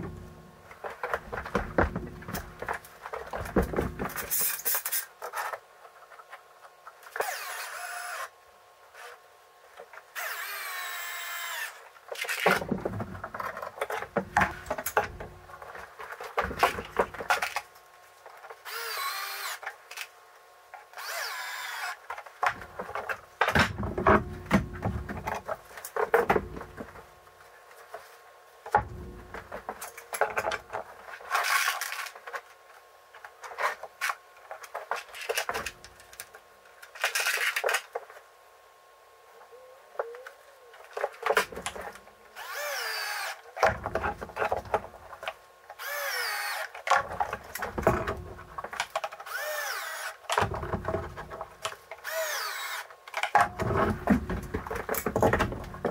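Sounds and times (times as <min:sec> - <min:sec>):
cordless drill whining: 0:07.2 - 0:08.3, 0:10.2 - 0:11.8, 0:18.7 - 0:19.6, 0:21.0 - 0:22.0, 0:42.4 - 0:43.4, 0:45.8 - 0:46.6, 0:49.3 - 0:50.1, 0:52.0 - 0:52.9.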